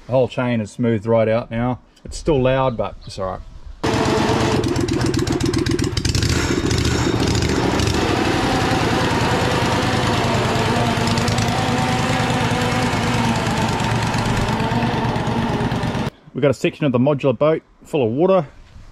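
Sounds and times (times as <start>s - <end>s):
loud chain drive: 3.8s - 16.1s
v-twin engine running: 3.8s - 16.1s.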